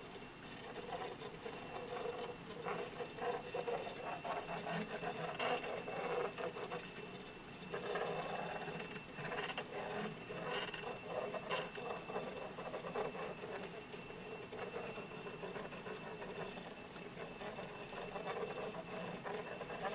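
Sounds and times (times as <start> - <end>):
faint high whine: 0.0 - 19.9
plotter drive humming: 0.0 - 19.9
pen ticking and scratching on paper: 14.5 - 19.9.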